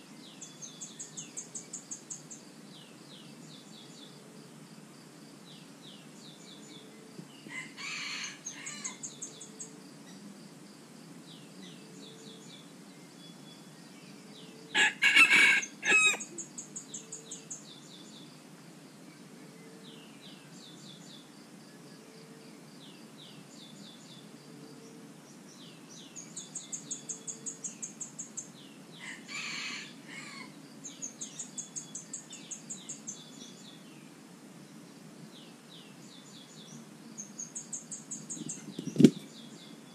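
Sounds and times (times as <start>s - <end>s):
small birds chirping: 0.0s - 39.9s
rooster crowing: 7.5s - 9.1s, 14.7s - 16.4s, 29.0s - 30.6s.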